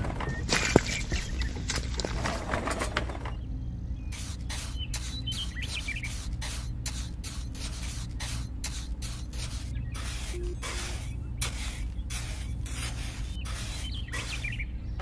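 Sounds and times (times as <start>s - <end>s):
steady low hum: 0.0s - 15.0s
trowel scraping wet cement: 6.2s - 14.6s.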